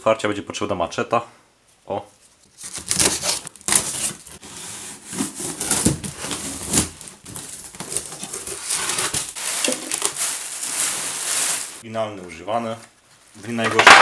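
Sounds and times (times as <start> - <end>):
wrap and cardboard crinkling: 2.3 - 11.8
machete scraping plastic wrap: 2.6 - 11.8.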